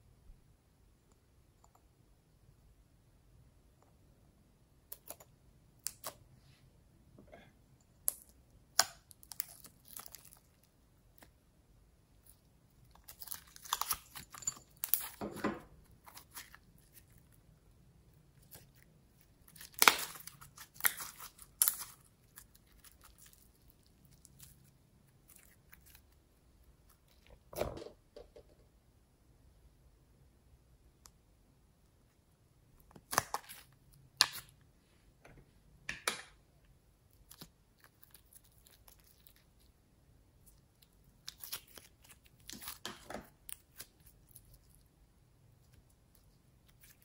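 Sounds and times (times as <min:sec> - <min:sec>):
slime crackling and popping: 0:08.0 - 0:11.4, 0:12.8 - 0:15.2, 0:19.4 - 0:24.6.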